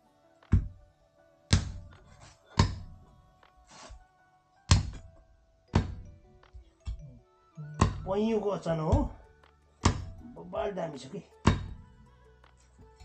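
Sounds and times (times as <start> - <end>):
background music: 0.0 - 13.0
cleaver chopping on wooden block: 1.5 - 2.0, 2.6 - 3.0, 4.7 - 5.1, 5.7 - 6.1, 7.8 - 8.1, 9.8 - 10.2, 11.4 - 11.8.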